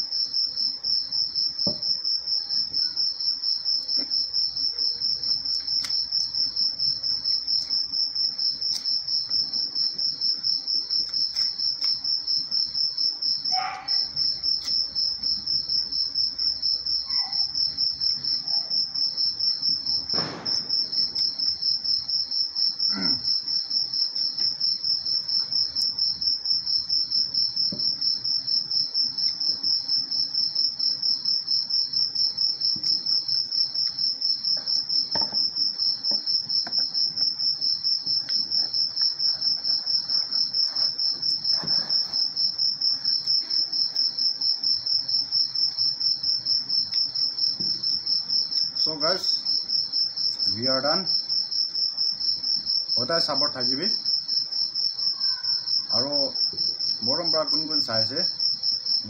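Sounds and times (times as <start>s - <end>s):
insects trilling: 0.0s - 59.0s
faint noises from table: 21.2s - 50.4s, 54.0s - 57.6s.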